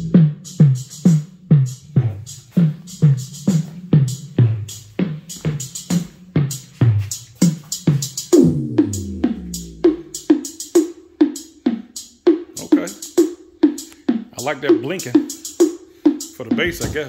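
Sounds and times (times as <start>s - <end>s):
deep kick drums: 0.0s - 0.8s, 7.9s - 10.2s, 16.5s - 17.0s
electronic beat music: 0.0s - 17.0s
hi-hat ticks: 0.0s - 17.0s
long falling bass note: 8.4s - 10.1s.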